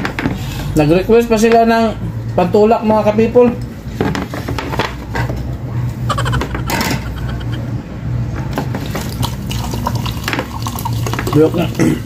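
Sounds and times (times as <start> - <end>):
soda pouring into a glass: 8.8 - 12.0.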